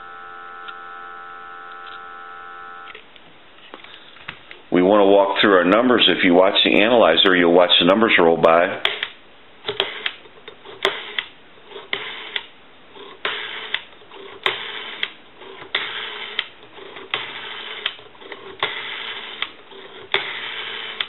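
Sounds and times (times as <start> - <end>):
rotary telephone dial whirring: 0.0 - 3.0, 9.7 - 21.0.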